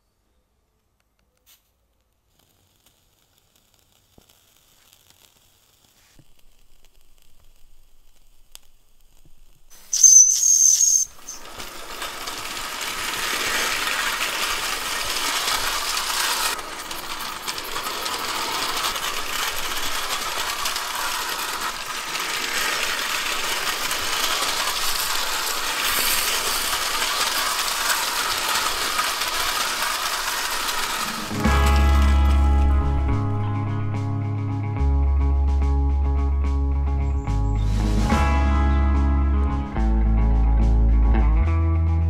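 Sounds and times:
steam hissing: 2.4 - 33.4
high steam whistle: 9.8 - 11.5
toy locomotive clattering on track: 9.9 - 33.1.

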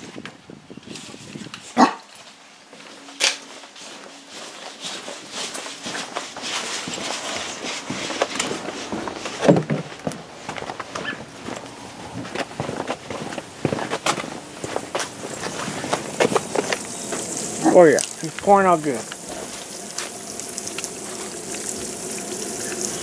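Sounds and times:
shuffling footsteps: 0.9 - 22.1
large dog barking: 1.8 - 2.1.

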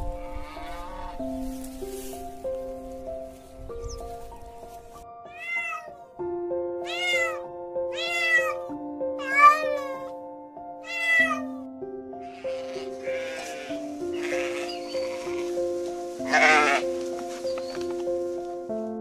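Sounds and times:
background music with held notes: 0.0 - 19.0
cat meowing: 5.2 - 6.2, 6.8 - 10.1, 10.8 - 11.7, 12.3 - 15.5.

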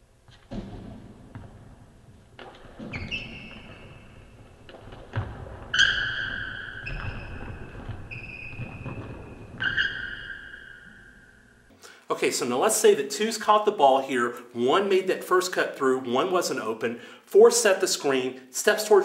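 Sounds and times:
basketball bouncing: 0.2 - 11.4
sneakers squeaking on hardwood: 0.2 - 11.7
footfall thuds: 0.3 - 5.8.

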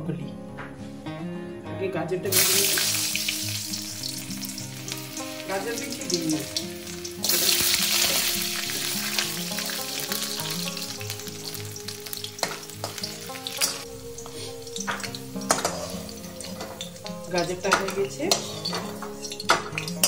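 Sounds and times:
carrots frying in hot oil: 2.3 - 20.0
spatula clinking against pan: 16.5 - 20.0.

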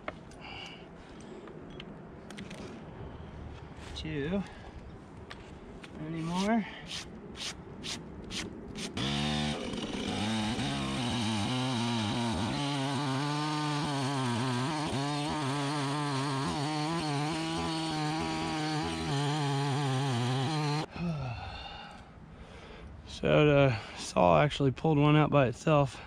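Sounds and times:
chainsaw cutting wood: 6.3 - 20.9.

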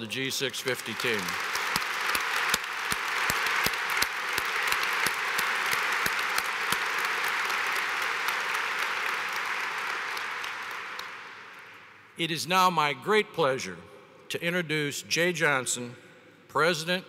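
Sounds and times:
large crowd applauding: 0.4 - 11.9.

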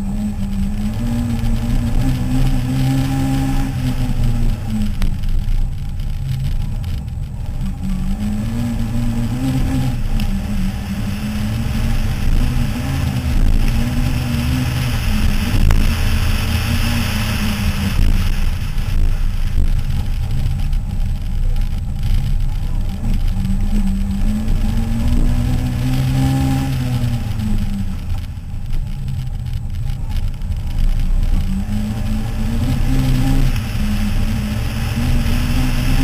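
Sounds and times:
rally car engine revving: 0.0 - 36.0
tyres hissing on gravel: 10.0 - 20.7.

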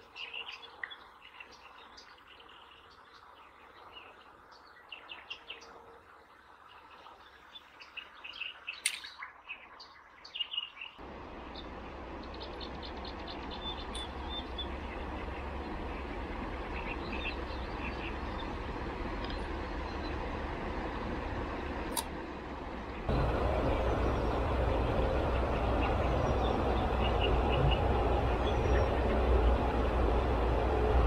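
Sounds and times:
small birds chirping: 0.0 - 6.0, 6.6 - 20.3, 23.0 - 29.8
rushing noise with low rumble: 11.0 - 31.0.

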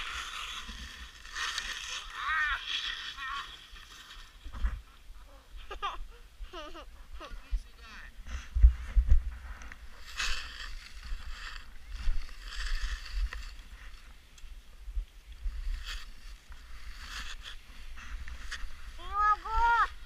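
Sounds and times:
skis scraping on snow: 0.0 - 4.8, 8.6 - 14.2
wind rumbling on microphone: 0.0 - 20.0.

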